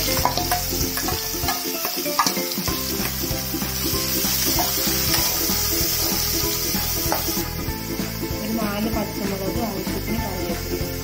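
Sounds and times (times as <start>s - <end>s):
spatula clinking on pan: 0.0s - 3.2s, 4.4s - 6.2s
onions sizzling in hot oil: 0.0s - 11.0s.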